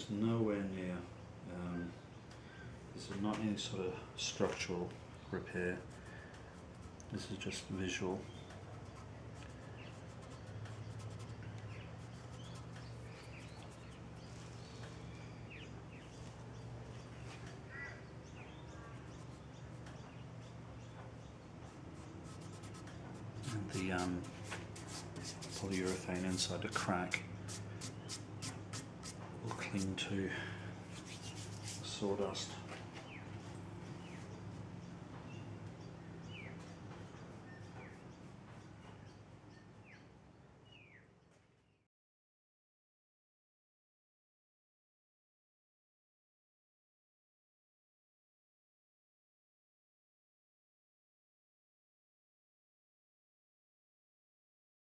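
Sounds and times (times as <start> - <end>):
steady low hum: 0.0 - 39.7
birds chirping: 0.9 - 41.1
fingertips scratching wood: 5.7 - 7.2, 8.3 - 14.3, 21.6 - 30.0, 30.9 - 32.0.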